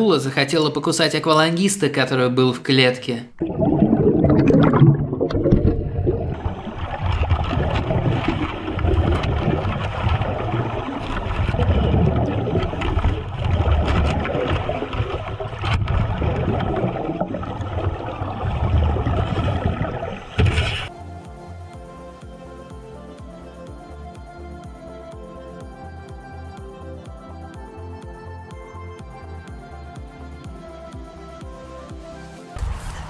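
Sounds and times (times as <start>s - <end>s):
underwater churning bubbles: 3.3s - 20.9s
pulsing low rumble: 3.4s - 20.5s, 32.6s - 33.0s.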